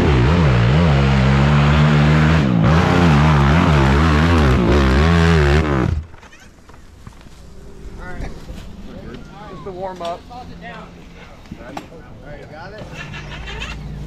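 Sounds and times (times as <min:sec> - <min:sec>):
engine revving hard: 0:00.0 - 0:06.0.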